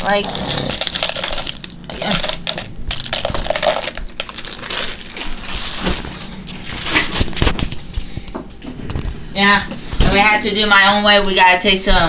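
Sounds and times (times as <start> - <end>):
chocolate chips rattling into container: 0.0 - 5.6
plastic bag crinkling: 0.0 - 7.8.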